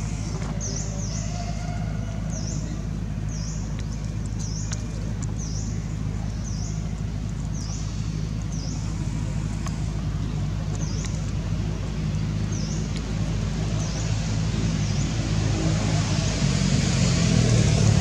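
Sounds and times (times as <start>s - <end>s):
low mechanical hum: 0.0s - 18.0s
faint clicks: 3.3s - 11.5s.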